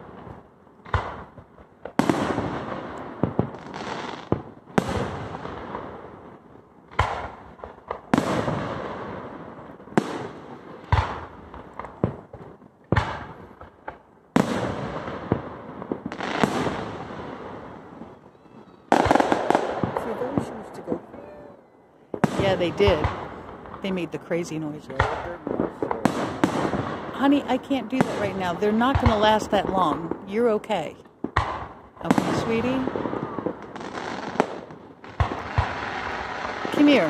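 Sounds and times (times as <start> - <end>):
fireworks booming with echo: 0.0 - 37.0.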